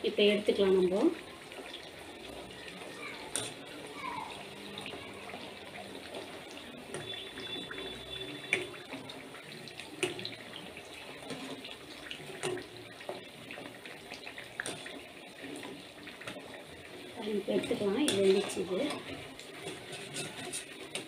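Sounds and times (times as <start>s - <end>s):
oil sizzling and bubbling: 0.0s - 21.0s
wire strainer clinking against pan: 3.2s - 3.7s, 17.4s - 21.0s.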